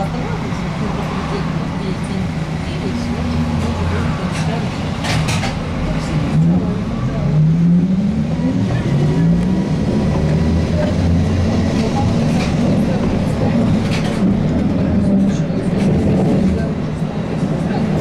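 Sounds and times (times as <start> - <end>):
rumble of the ride: 0.0 - 18.0.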